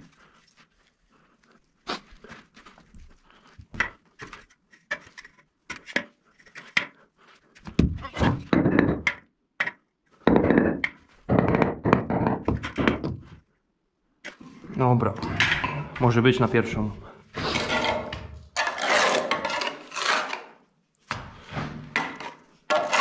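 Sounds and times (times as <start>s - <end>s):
brick scraping on mortar: 17.4s - 20.6s, 22.0s - 23.0s.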